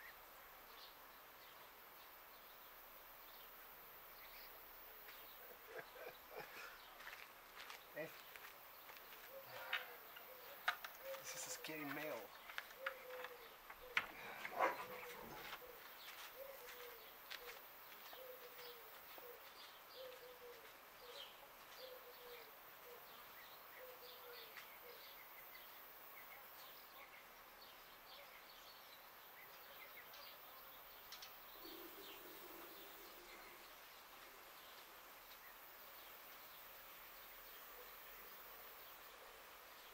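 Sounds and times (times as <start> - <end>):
small birds chirping: 0.0 - 39.9
dove cooing: 9.2 - 12.2, 12.8 - 23.2, 23.8 - 25.1, 31.5 - 34.4.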